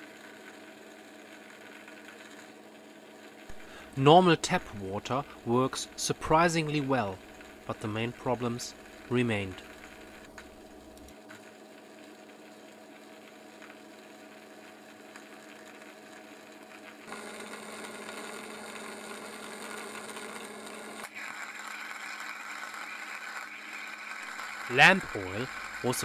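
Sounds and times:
sparks buzzing and hissing: 0.0s - 2.6s, 3.2s - 26.0s
machine humming: 2.4s - 11.2s, 16.9s - 26.0s.

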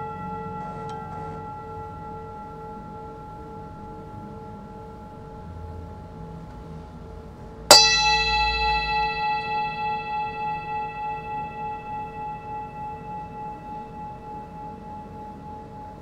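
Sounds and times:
metal bell ringing: 7.7s - 15.7s.

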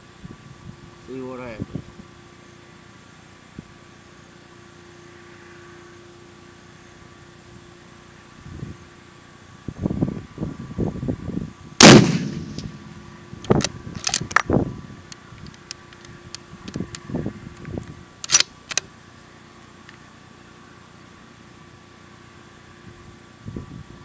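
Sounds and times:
rifle bolt clicking: 11.8s - 12.8s, 13.4s - 14.5s, 18.2s - 18.9s
rifle shot with echo: 11.8s - 13.1s.

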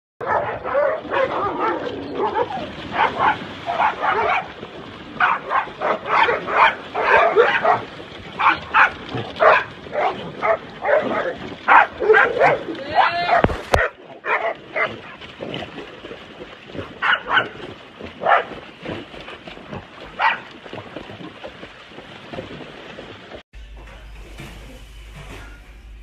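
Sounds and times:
dogs barking and yipping: 0.2s - 15.3s, 16.8s - 18.6s, 20.1s - 20.5s.

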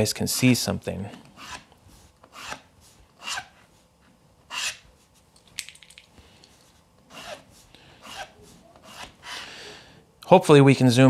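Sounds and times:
pencil scratching along metal edge: 2.3s - 2.6s, 4.5s - 4.8s, 7.1s - 9.4s.

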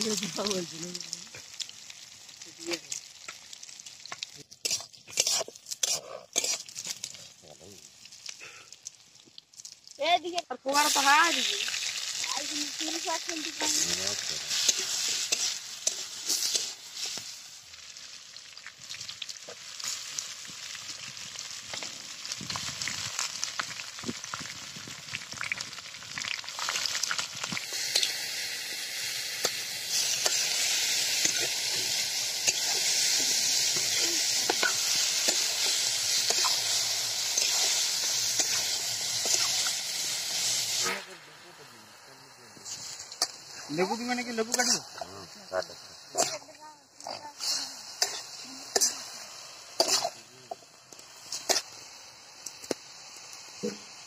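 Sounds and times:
food sizzling in hot oil: 0.0s - 54.0s
metal spatula scraping pan: 4.6s - 6.8s.

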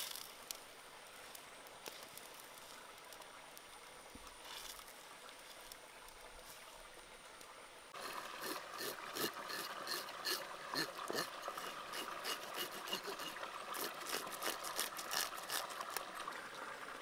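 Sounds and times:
water boiling faintly: 0.0s - 17.0s
knife scraping scales: 8.0s - 16.1s.

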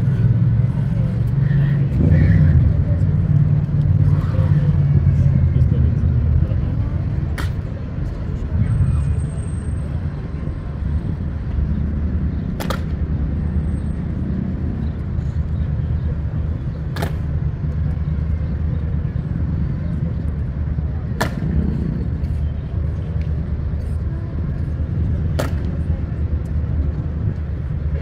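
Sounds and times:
low street rumble: 0.0s - 28.0s.

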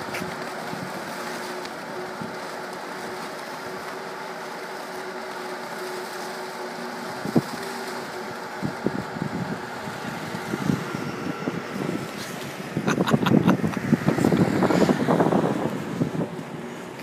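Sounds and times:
blower fan humming: 0.0s - 17.0s
street noise: 0.0s - 17.0s
wind thumping on microphone: 8.6s - 17.0s.

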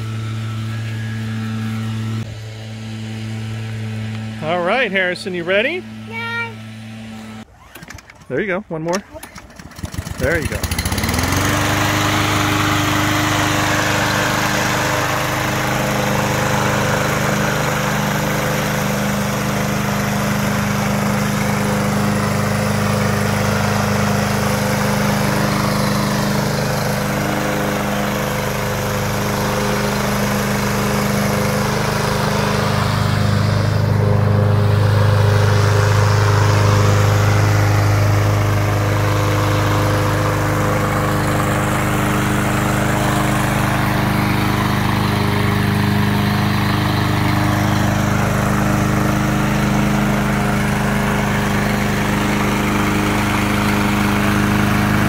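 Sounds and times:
lawn mower engine running: 0.0s - 55.0s.

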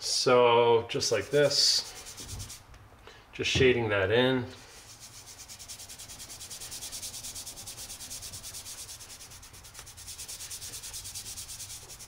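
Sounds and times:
fingers rubbing on paper: 1.8s - 2.6s, 4.8s - 12.0s.

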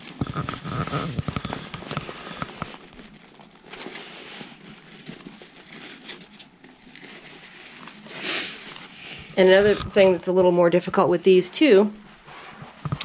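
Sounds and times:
backpack fabric crinkling: 0.0s - 10.2s.

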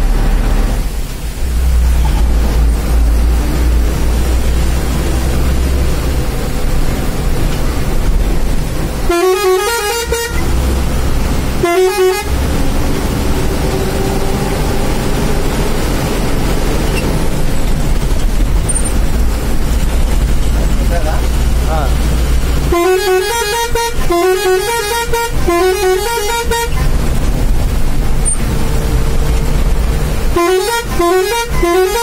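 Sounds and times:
truck engine rumbling: 0.0s - 32.0s
truck air horn blasts: 9.1s - 12.6s, 22.6s - 27.0s, 30.3s - 32.0s.

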